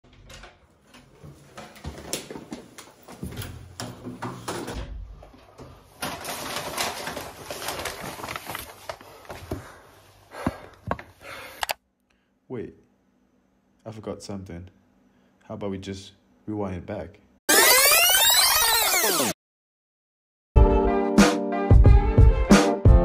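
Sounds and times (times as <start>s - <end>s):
paper bag rustling: 5.8s - 9.4s.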